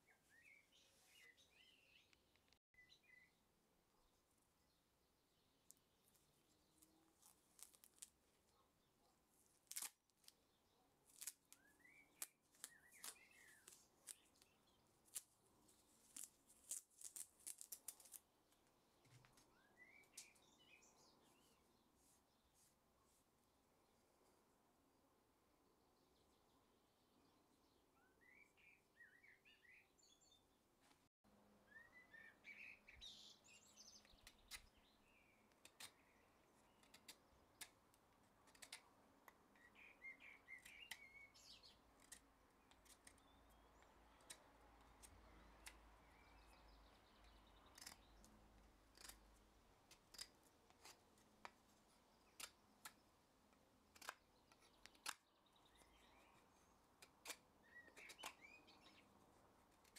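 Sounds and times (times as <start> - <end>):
knife whittling wood clicks: 38.4 - 39.4, 47.7 - 49.3, 49.9 - 51.0, 53.9 - 55.2, 57.0 - 59.0
birds chirping: 57.6 - 59.2.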